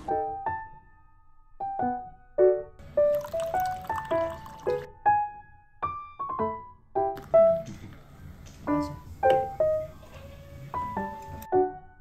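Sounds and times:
piano melody: 0.0s - 12.0s.

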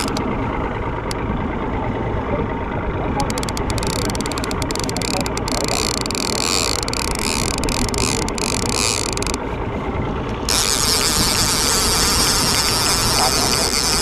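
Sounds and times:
fishing reel whirring and clicking: 0.0s - 0.3s, 3.2s - 9.4s, 10.5s - 14.0s.

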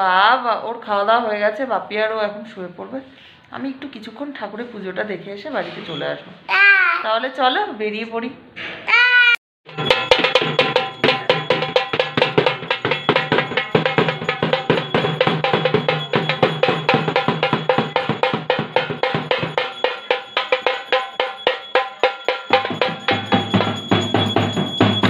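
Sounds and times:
fast percussion strokes: 9.7s - 25.0s
ringing metallic tones: 9.7s - 25.0s.

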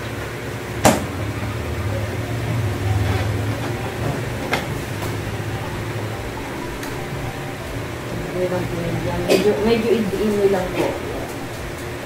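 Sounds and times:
steady low hum: 0.6s - 12.0s.

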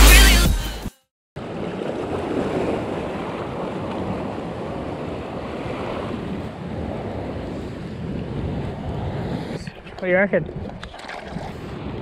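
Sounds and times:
ocean surf washing in: 1.4s - 10.4s
wind on microphone: 1.5s - 12.0s.

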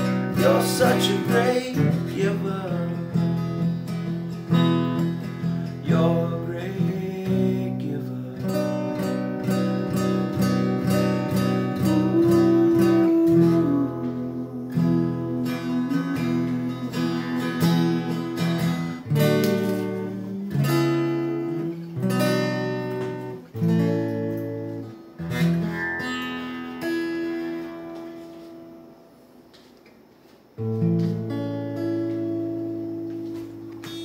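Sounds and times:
acoustic guitar strumming: 0.0s - 29.8s, 30.5s - 34.0s.

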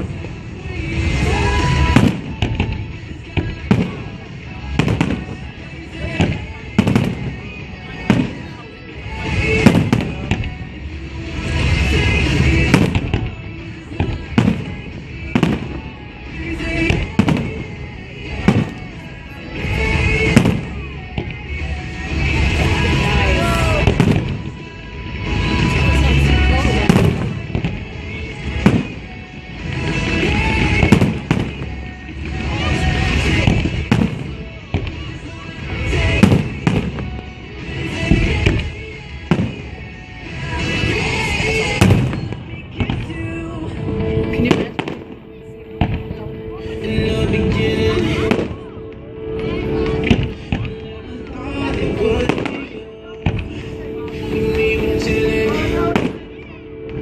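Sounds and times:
fireworks booming: 0.0s - 56.4s
fireworks sizzling and crackling: 0.0s - 57.0s
music playing: 0.0s - 57.0s.

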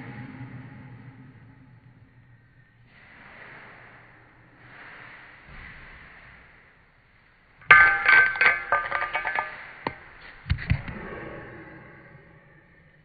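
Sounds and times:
bottle cap clattering and spinning: 7.6s - 9.6s.

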